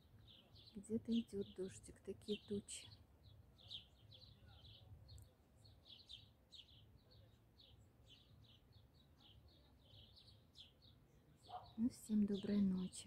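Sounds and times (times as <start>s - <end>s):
faint high-pitched chirping: 0.0s - 13.0s.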